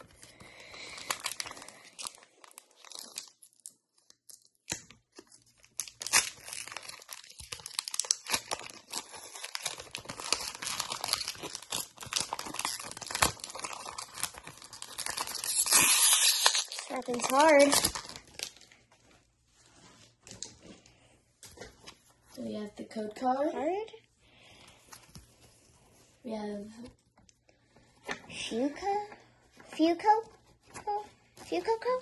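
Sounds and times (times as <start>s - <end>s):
foil wrapper crinkling and tearing: 0.1s - 18.8s.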